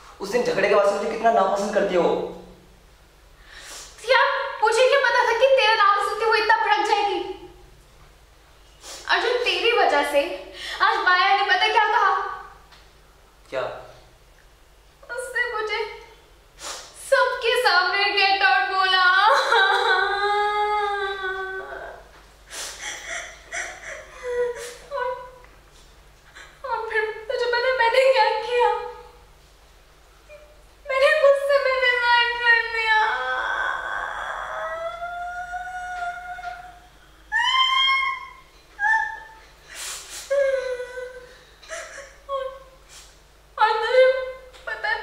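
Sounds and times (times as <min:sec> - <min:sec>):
noisy breath: 0:03.4 - 0:04.0, 0:16.6 - 0:17.0, 0:22.4 - 0:23.4, 0:39.6 - 0:40.3
woman crying: 0:18.8 - 0:25.4, 0:30.3 - 0:39.4, 0:40.3 - 0:42.8, 0:43.6 - 0:45.0
woman wailing sob: 0:19.2 - 0:22.0, 0:22.8 - 0:25.4, 0:32.8 - 0:39.4
woman sobbing and sniffling: 0:22.5 - 0:25.3, 0:38.8 - 0:43.2.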